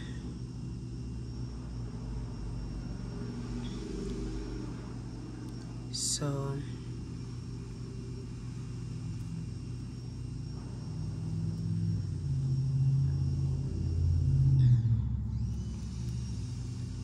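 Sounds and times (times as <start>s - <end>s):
low rumble: 10.5s - 17.0s.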